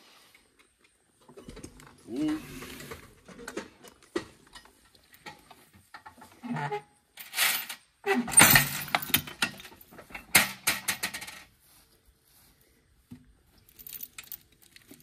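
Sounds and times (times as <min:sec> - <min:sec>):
metal clinking and rattling: 0:07.2 - 0:11.5, 0:13.6 - 0:15.0.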